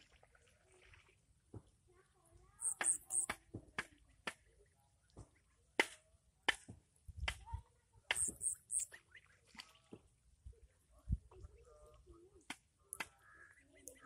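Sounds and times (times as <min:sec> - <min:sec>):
ducklings calling softly: 0:02.6 - 0:03.3, 0:08.1 - 0:08.9.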